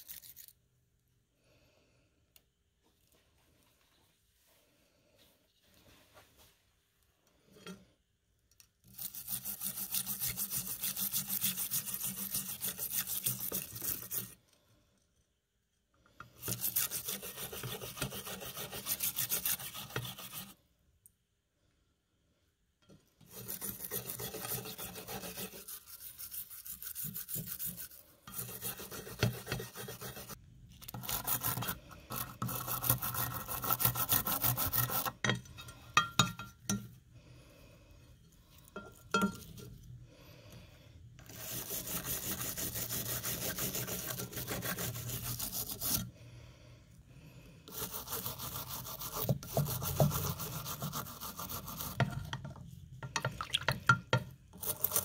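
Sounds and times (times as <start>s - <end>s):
wire brush scrubbing metal: 8.8s - 14.4s, 16.3s - 20.6s, 23.2s - 36.8s, 41.2s - 46.1s, 47.7s - 52.3s.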